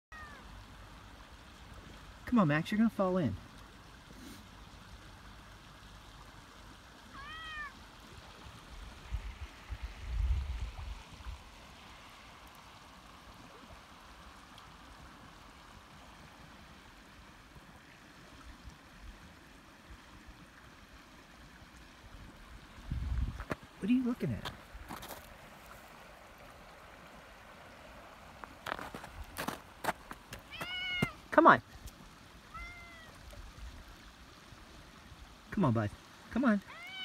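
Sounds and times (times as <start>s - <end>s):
cat meowing: 0.1s - 0.4s, 7.1s - 7.8s, 30.5s - 31.2s, 32.5s - 33.2s, 36.7s - 37.0s
creek running: 0.1s - 37.0s.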